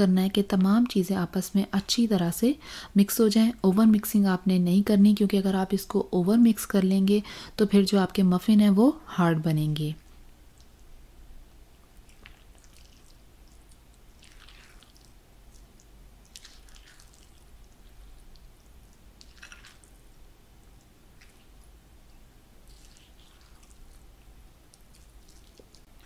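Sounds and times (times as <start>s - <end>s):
low steady hum: 0.0s - 26.0s.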